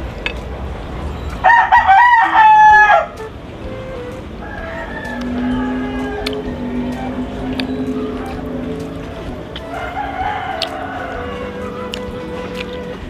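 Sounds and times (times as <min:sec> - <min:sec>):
rooster crowing: 0:01.4 - 0:03.2, 0:04.4 - 0:12.6.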